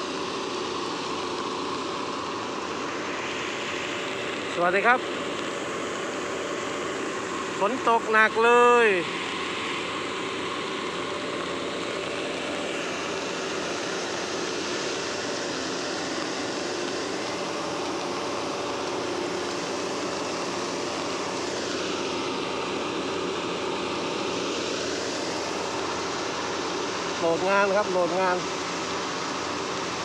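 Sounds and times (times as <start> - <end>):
heavy rain: 8.9 - 30.0.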